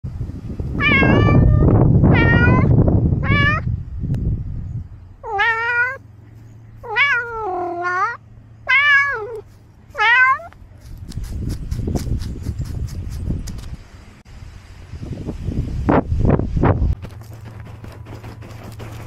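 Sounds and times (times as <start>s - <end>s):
loud low rumbling: 0.0s - 19.0s
cat meowing: 0.8s - 3.7s, 5.2s - 6.0s, 6.8s - 10.6s.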